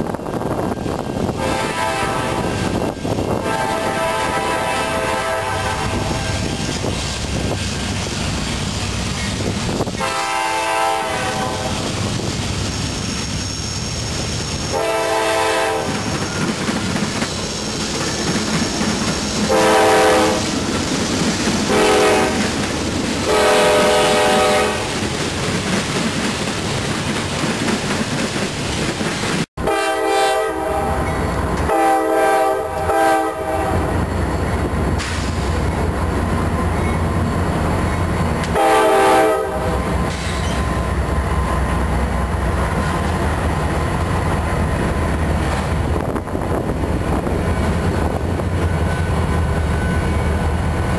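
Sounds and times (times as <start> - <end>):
train wheels on rails: 0.0 - 50.9
locomotive air horn: 1.4 - 2.7, 3.3 - 6.7, 9.9 - 12.0, 14.7 - 16.1, 19.5 - 20.5, 21.7 - 22.5, 23.2 - 25.0, 29.6 - 34.0, 38.5 - 39.9.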